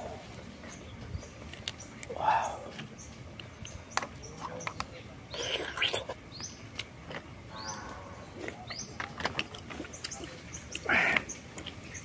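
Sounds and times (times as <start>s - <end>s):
slurp: 5.4s - 6.2s
chewing with wet lip smacks: 7.9s - 12.0s.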